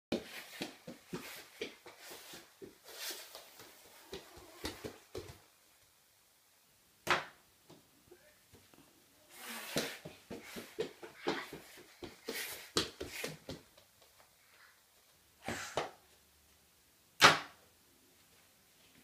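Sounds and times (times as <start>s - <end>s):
toddler footsteps: 0.1s - 5.9s, 8.5s - 15.2s.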